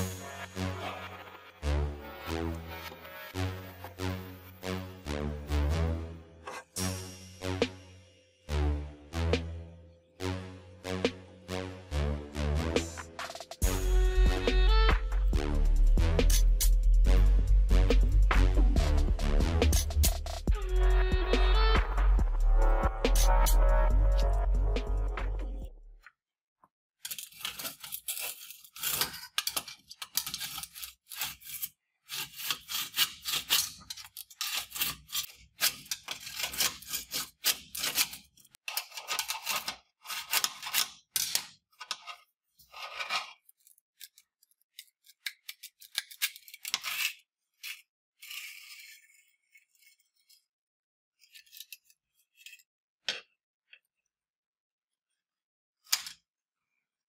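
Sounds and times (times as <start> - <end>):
metal scraping and clinking: 32.4 - 44.3.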